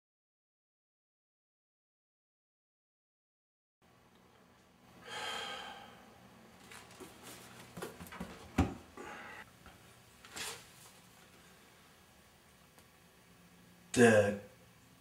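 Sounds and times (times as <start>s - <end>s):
man sighing: 5.0s - 6.0s, 9.0s - 9.4s.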